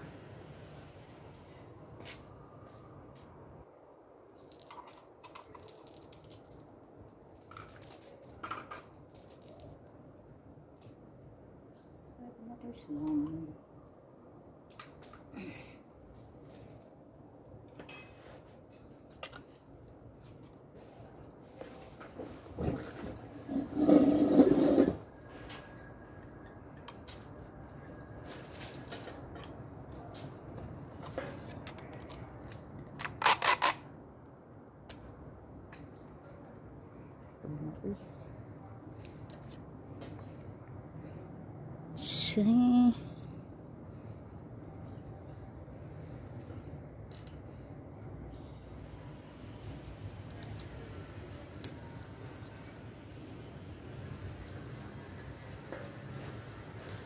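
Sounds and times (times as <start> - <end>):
crumbling crackles on paving: 4.4 - 10.0.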